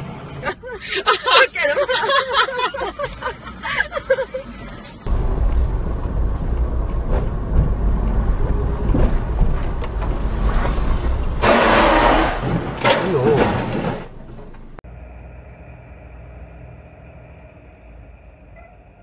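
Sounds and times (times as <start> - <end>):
car driving rumble: 0.0 - 19.0
voices inside a car: 0.4 - 3.0, 12.8 - 13.8.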